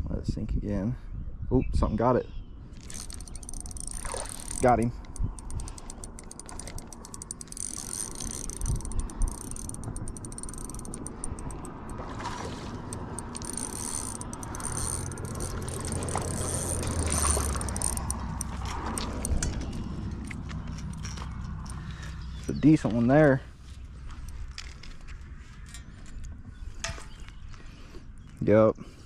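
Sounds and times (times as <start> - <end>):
fishing reel ticking: 2.8 - 21.9.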